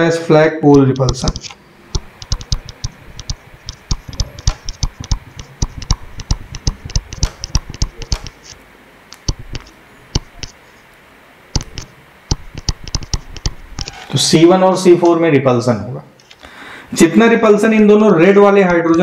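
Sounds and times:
stylus tapping and scratching: 0:00.6 - 0:10.8, 0:11.6 - 0:14.2.

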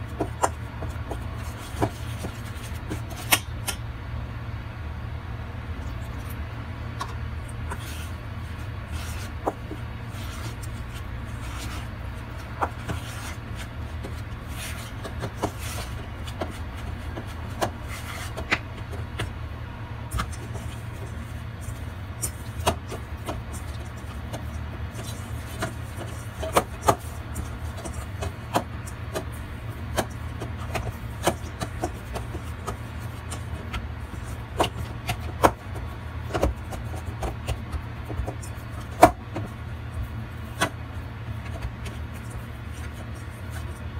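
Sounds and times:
hands kneading dough: 0:00.0 - 0:03.9, 0:05.7 - 0:43.9
steady low hum: 0:00.0 - 0:43.9.

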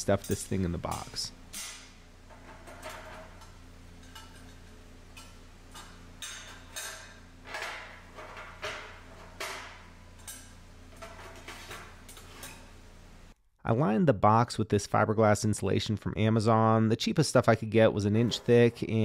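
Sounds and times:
sheet metal clinking and knocking: 0:00.2 - 0:12.5.

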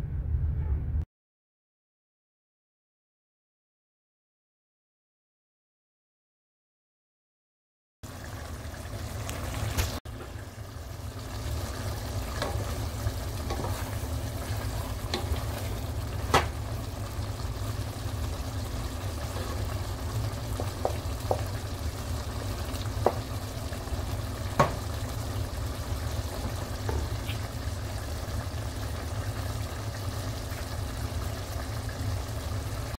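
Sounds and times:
stew simmering and bubbling: 0:08.0 - 0:33.0.

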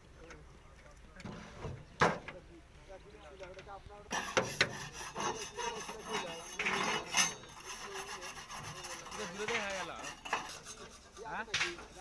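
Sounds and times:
panels scraping and rubbing: 0:04.1 - 0:12.0.

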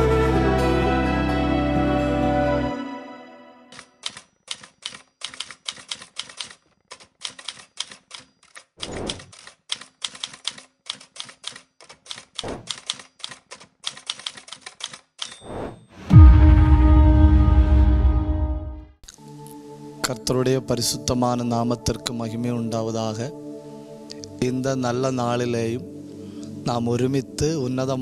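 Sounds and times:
background music: 0:00.0 - 0:03.9, 0:16.0 - 0:28.0
typewriter keys striking: 0:03.7 - 0:15.4
typewriter bell ring: 0:15.2 - 0:15.5.

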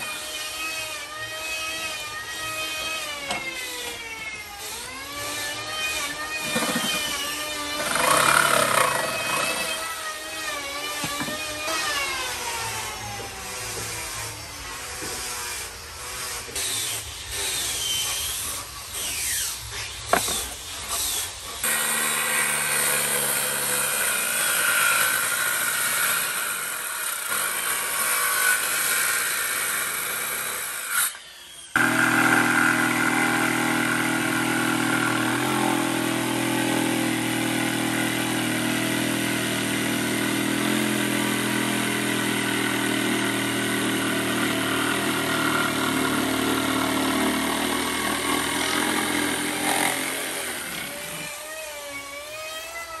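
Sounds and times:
circular saw cutting wood: 0:00.0 - 0:53.0
electric jigsaw cutting: 0:00.0 - 0:53.0
board knocking and scraping: 0:06.3 - 0:09.8, 0:10.9 - 0:11.5.

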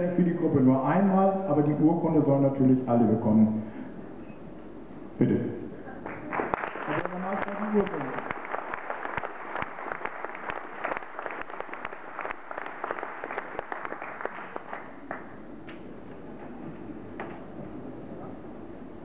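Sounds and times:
low room noise: 0:00.0 - 0:19.0
audience applauding: 0:06.0 - 0:15.4.

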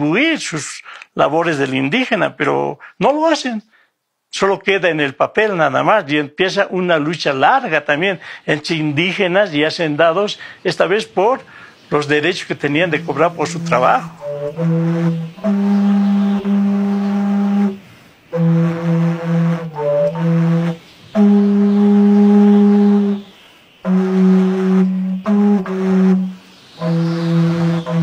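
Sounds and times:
reedy wind instrument long notes: 0:12.2 - 0:28.0.

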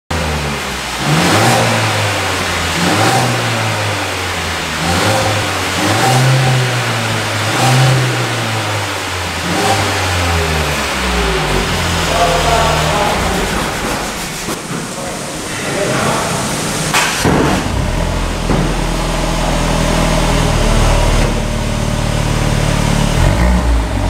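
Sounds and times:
car engine revving: 0:00.1 - 0:15.6, 0:16.2 - 0:24.0.

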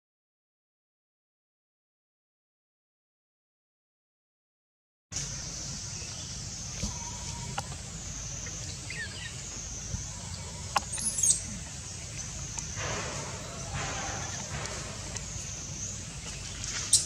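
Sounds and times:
low rumble: 0:05.2 - 0:17.0.

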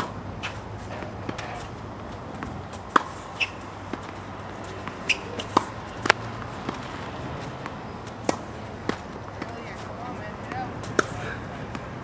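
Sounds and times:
balls bouncing on hard court: 0:00.0 - 0:12.0
tennis racket striking balls: 0:00.0 - 0:12.0
short high squeaks: 0:03.2 - 0:03.7, 0:05.0 - 0:05.6.

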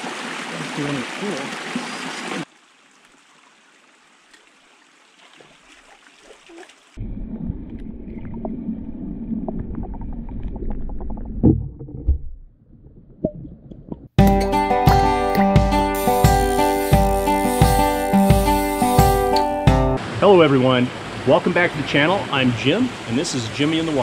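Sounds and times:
underwater creek rumble and gurgle: 0:05.4 - 0:14.2
acoustic guitar music: 0:14.2 - 0:20.0.

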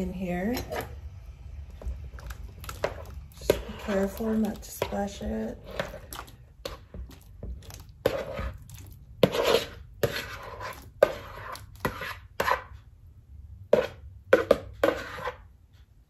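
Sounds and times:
spoon scraping plastic bowl: 0:00.3 - 0:01.1, 0:01.7 - 0:12.8, 0:13.7 - 0:15.5.

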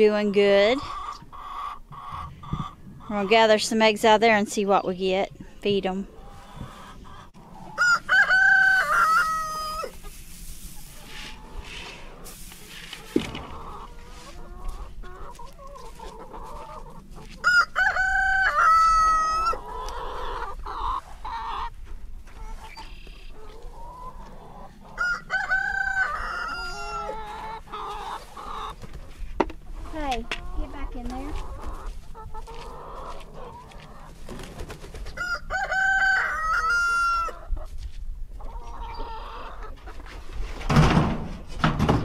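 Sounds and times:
hens clucking: 0:00.1 - 0:37.7, 0:38.3 - 0:42.0
rooster crowing: 0:07.8 - 0:09.9, 0:17.4 - 0:19.6, 0:25.0 - 0:27.3, 0:35.2 - 0:37.4.

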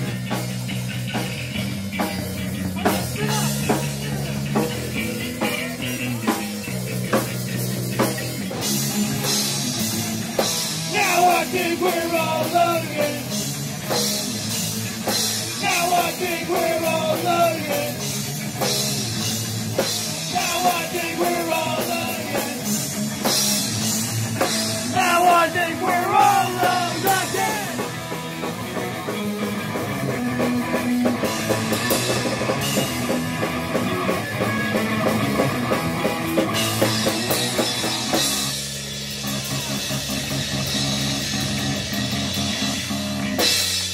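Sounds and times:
punk rock band playing live: 0:00.0 - 0:43.9
person singing: 0:10.9 - 0:13.3, 0:15.5 - 0:18.1, 0:20.3 - 0:22.7, 0:24.9 - 0:27.9.

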